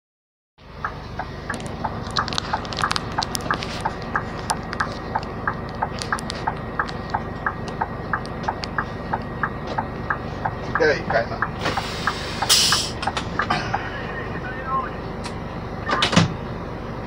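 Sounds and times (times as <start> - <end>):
truck diesel engine running: 0.6 - 17.0
alternating tick-tock: 0.8 - 13.8.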